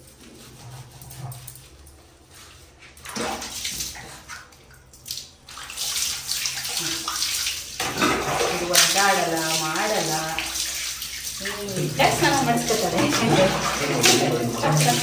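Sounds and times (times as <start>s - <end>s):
water splashing and pouring: 3.0s - 15.0s.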